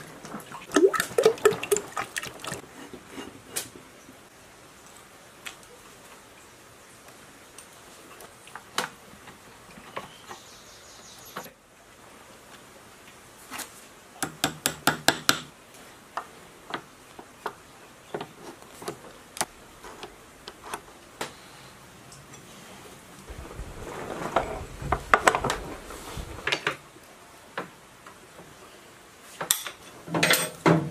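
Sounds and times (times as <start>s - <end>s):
hammer tapping metal: 14.2s - 15.5s.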